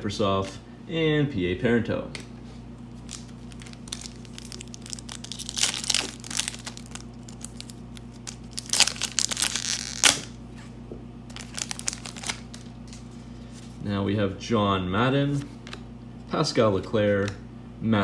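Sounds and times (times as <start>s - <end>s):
foil pack crinkling and tearing: 2.9s - 10.4s, 11.3s - 13.1s
sharp foil rip: 8.6s - 10.3s.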